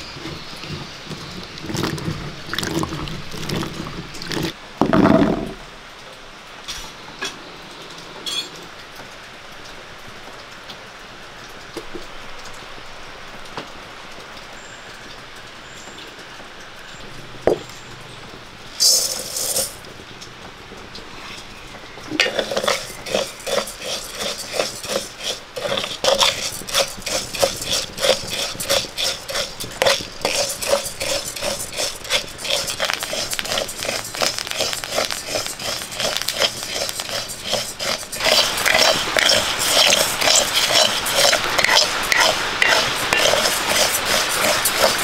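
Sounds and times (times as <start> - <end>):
rice rattling in metal pan: 18.8 - 19.8, 22.2 - 45.0.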